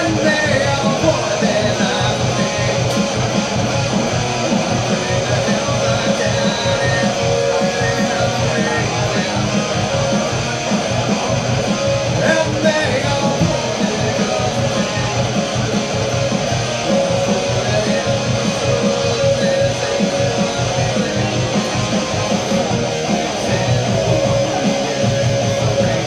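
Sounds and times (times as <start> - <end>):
amplified electric guitar strumming: 0.0 - 26.0
steady beat: 0.0 - 26.0.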